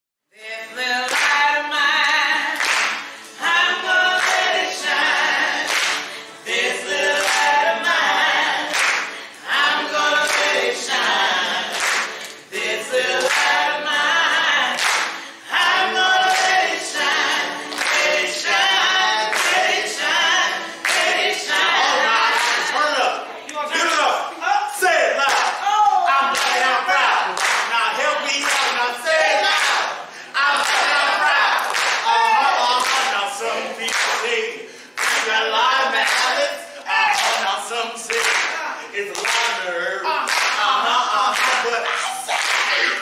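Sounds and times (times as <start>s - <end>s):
group singing a cappella: 0.3s - 24.2s, 24.9s - 43.0s
hand claps: 1.1s - 3.5s, 4.2s - 5.0s, 5.6s - 6.3s, 7.2s - 7.6s, 8.6s - 9.3s, 10.2s - 10.7s, 11.6s - 12.6s, 13.2s - 13.6s, 14.6s - 19.8s, 20.8s - 21.3s, 25.2s - 25.6s, 26.3s - 28.9s, 29.5s - 31.0s, 31.6s - 33.2s, 33.8s - 34.4s, 35.0s - 35.4s, 36.0s - 36.4s, 37.1s - 39.6s, 40.2s - 43.0s.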